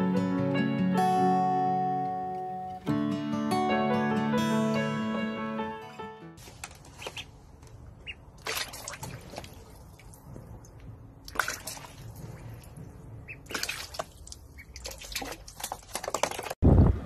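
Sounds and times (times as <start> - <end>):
water splashing in a plastic tub: 8.0 - 16.6.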